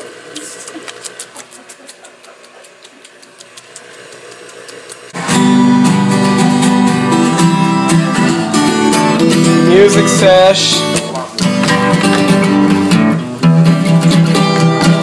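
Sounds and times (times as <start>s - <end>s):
acoustic guitar strumming: 5.1s - 15.0s.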